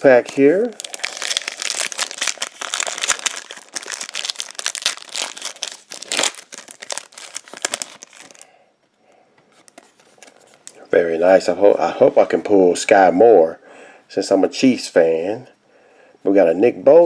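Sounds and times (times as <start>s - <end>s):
foil wrapper tearing and crinkling: 0.2s - 8.5s.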